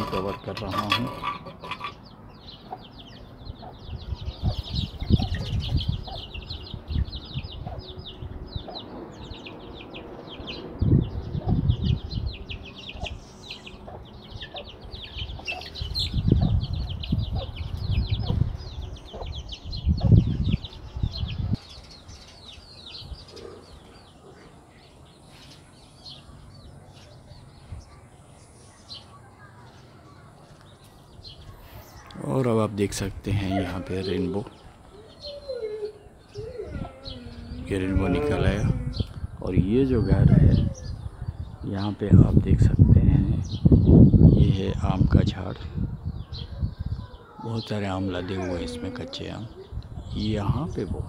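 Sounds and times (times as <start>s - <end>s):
chicks peeping: 0.0s - 51.0s.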